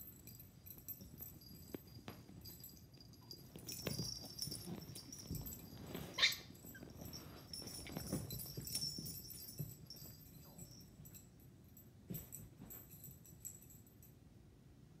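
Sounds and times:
animals scuffling on carpet: 0.8s - 11.0s
puppy yipping: 5.9s - 7.0s.

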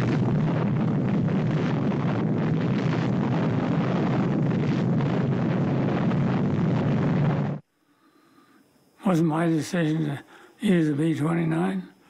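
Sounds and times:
deep rumbling explosion roar: 0.0s - 7.6s.

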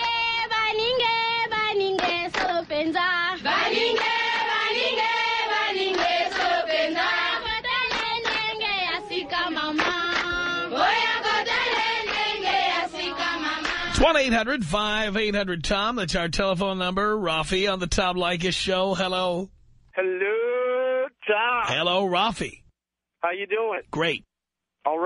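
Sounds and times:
choir chanting: 3.4s - 14.0s.

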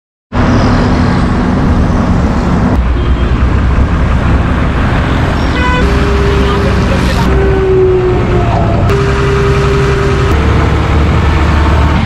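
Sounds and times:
deep heavy engine rumble: 0.3s - 12.0s
traffic noise: 0.3s - 12.0s
road roller diesel engines: 0.4s - 12.0s
steady pitched tone: 5.8s - 12.0s.

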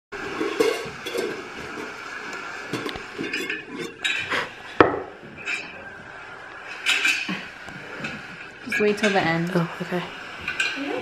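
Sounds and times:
dishes and cutlery clinking: 0.2s - 2.0s, 2.7s - 5.8s, 6.6s - 9.4s, 10.4s - 11.0s.

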